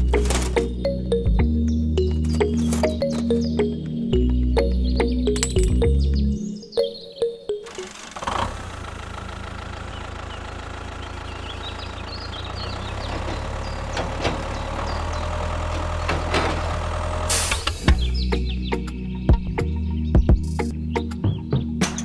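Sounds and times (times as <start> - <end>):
birds chirping: 0.0 - 8.0, 8.8 - 22.0
engine idling: 7.6 - 18.4.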